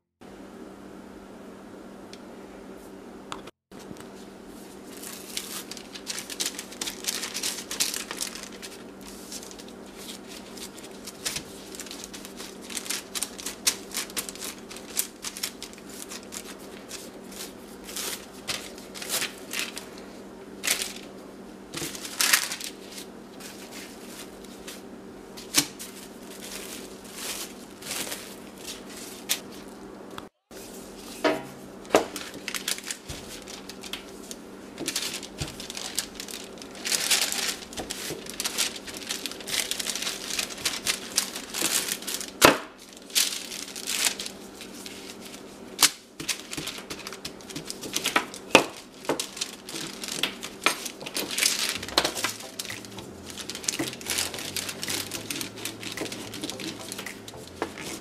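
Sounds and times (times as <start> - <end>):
steady low hum: 0.2 - 58.0
handling clicks and crackles: 45.8 - 58.0.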